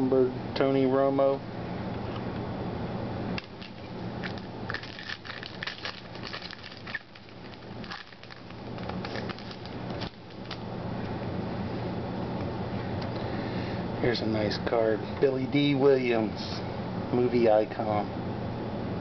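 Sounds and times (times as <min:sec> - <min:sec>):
steady low hum: 0:00.0 - 0:19.0
trading cards flipped by hand: 0:03.4 - 0:10.6.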